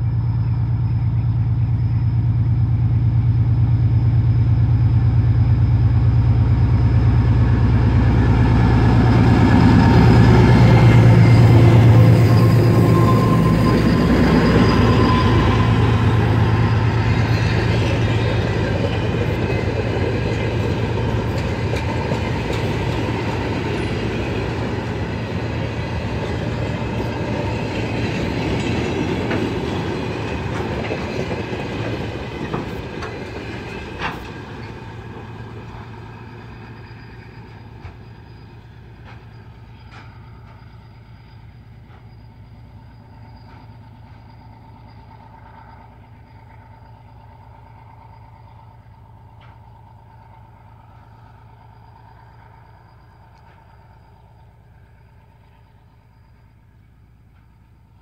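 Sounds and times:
diesel locomotive engine: 0:00.0 - 0:58.0
train wheels clacking: 0:08.0 - 0:41.0.

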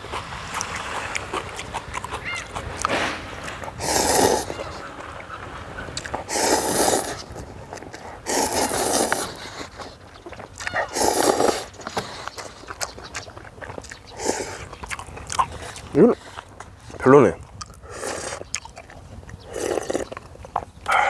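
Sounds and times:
chewing clicks: 0:00.0 - 0:05.3, 0:05.9 - 0:21.0
person slurping noodles: 0:02.6 - 0:04.8, 0:06.0 - 0:10.0, 0:10.9 - 0:11.7, 0:17.8 - 0:18.4, 0:19.4 - 0:20.1.

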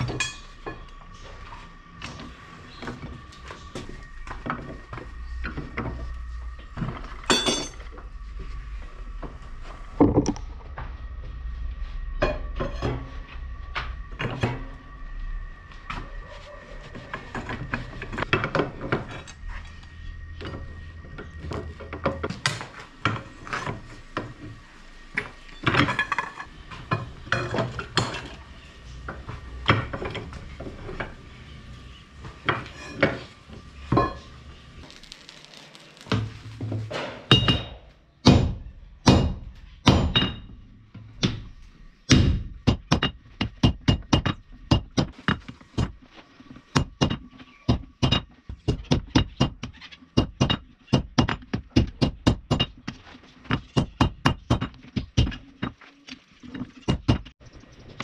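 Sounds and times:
hammer striking steel on anvil: 0:37.3 - 0:40.5.

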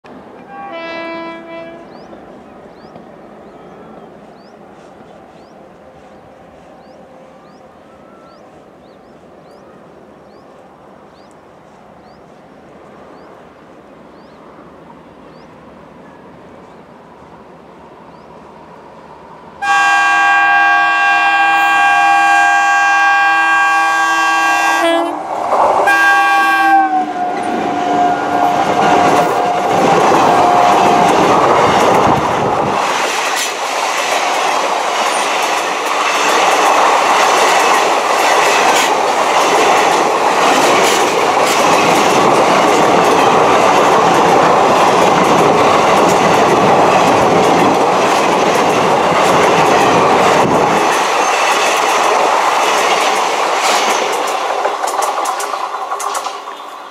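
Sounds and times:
locomotive horn blaring: 0:00.4 - 0:02.1, 0:19.6 - 0:31.3
train wheels clattering over rail joints: 0:28.7 - 0:56.7.

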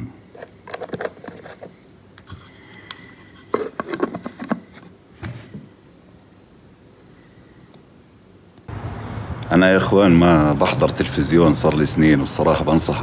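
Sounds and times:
plastic bottles clicking and tapping: 0:02.8 - 0:04.8.

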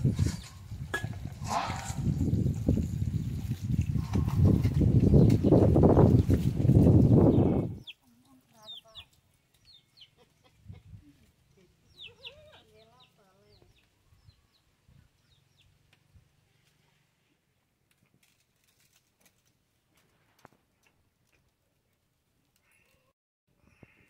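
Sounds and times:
chickens clucking: 0:09.8 - 0:13.1.

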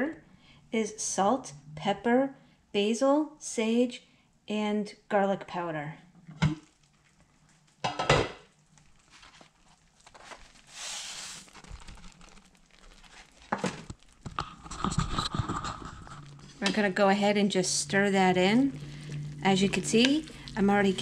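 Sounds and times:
cookware clattering: 0:07.8 - 0:08.4
brief hiss: 0:10.7 - 0:11.4.

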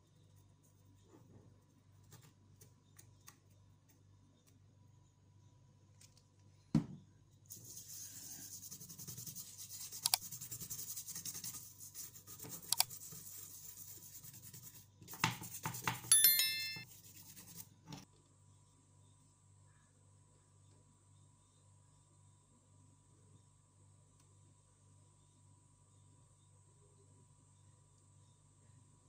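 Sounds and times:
brush scrubbing circuit board: 0:07.5 - 0:16.2
short chime: 0:16.1 - 0:16.9.

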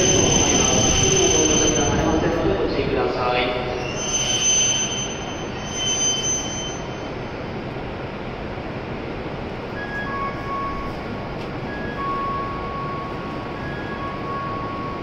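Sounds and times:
high-pitched whine: 0:00.0 - 0:07.7, 0:09.6 - 0:15.0
train hissing at platform: 0:00.0 - 0:15.0.

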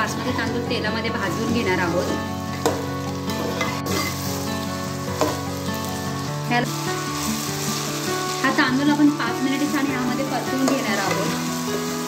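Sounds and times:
rice sizzling in hot oil: 0:00.0 - 0:12.0
metal spatula scraping pot: 0:01.9 - 0:04.4.

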